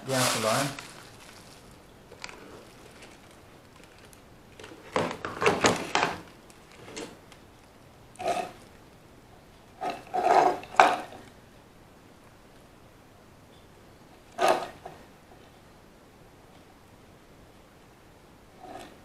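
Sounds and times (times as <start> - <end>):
handling noise rubbing and knocking: 9.8 - 11.2.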